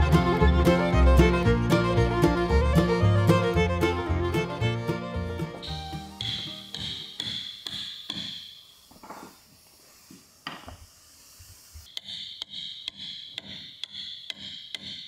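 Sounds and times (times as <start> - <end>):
music: 0.0 - 8.3
mallet tapping caulking iron: 6.2 - 8.6, 11.9 - 15.0.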